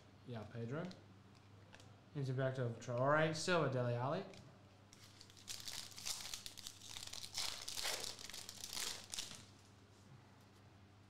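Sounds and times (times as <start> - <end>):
foil wrapper tearing and crinkling: 5.0 - 9.5.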